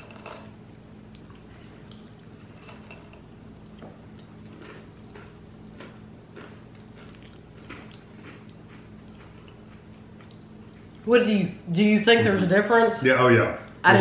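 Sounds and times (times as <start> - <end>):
steady low hum: 0.0 - 14.0
candy being chewed crunchily: 4.1 - 10.4.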